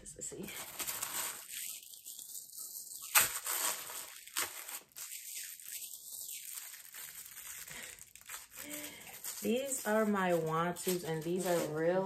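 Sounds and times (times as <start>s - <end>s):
plastic wrapping crinkling: 0.1s - 12.0s.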